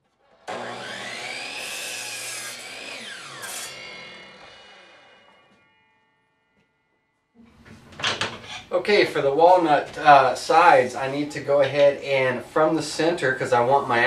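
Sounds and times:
miter saw cutting wood: 0.1s - 5.8s.

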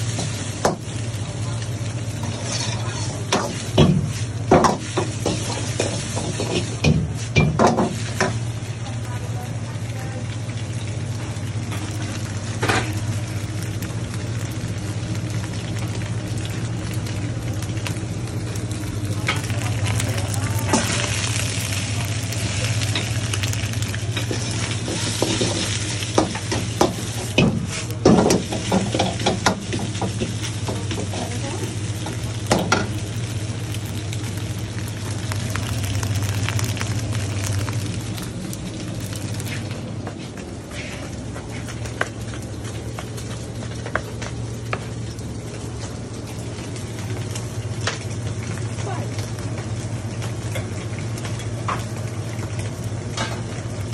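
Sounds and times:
food sizzling in a wok: 0.0s - 53.9s
metal ladle scraping a wok: 2.2s - 3.2s
steady low hum: 8.3s - 43.7s.

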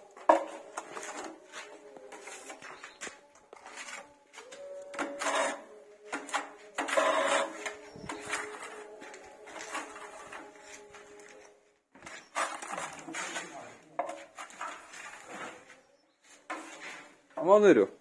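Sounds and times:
putty blade scraping wall: 5.0s - 8.8s.

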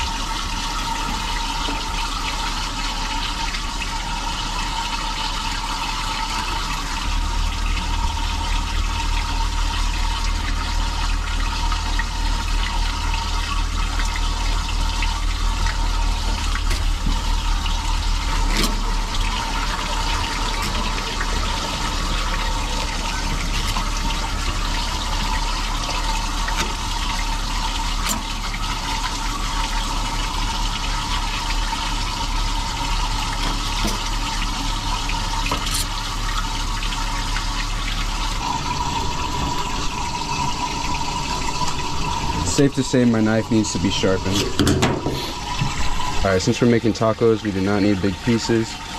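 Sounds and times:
running water rushing: 0.0s - 48.9s
low rumble: 37.5s - 46.4s.

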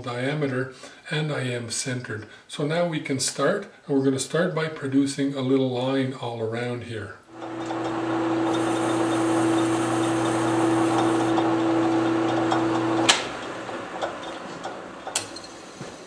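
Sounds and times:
metal lathe motor hum: 7.3s - 16.0s
lathe switch click: 12.5s - 15.4s.

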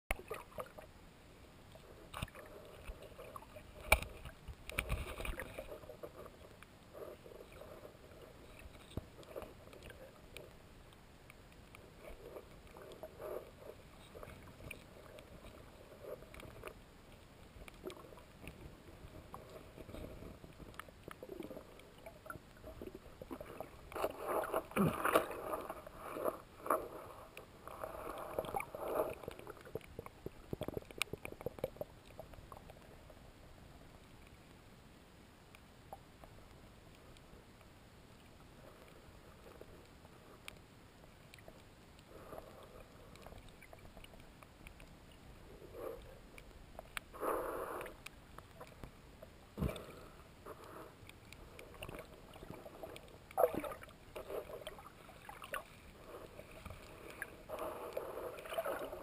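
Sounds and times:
faint underwater hiss: 0.2s - 59.0s
water sloshing: 2.1s - 10.5s, 49.6s - 59.0s.

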